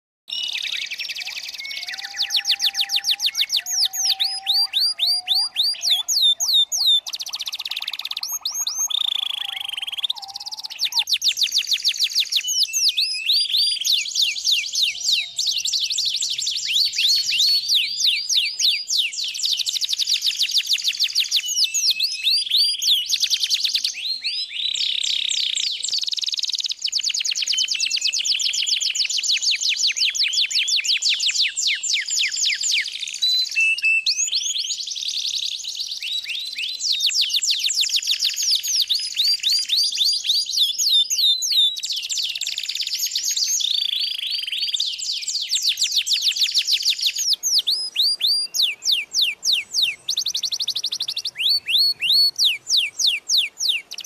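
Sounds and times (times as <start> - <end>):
birds chirping in high trills: 0.3 - 29.2.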